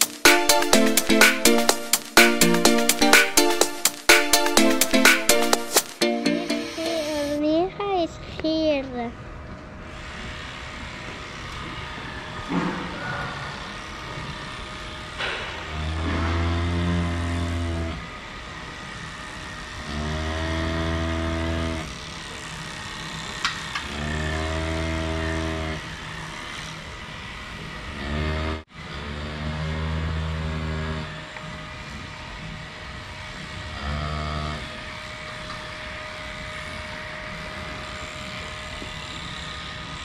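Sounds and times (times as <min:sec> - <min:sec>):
cattle mooing: 0:15.7 - 0:18.0.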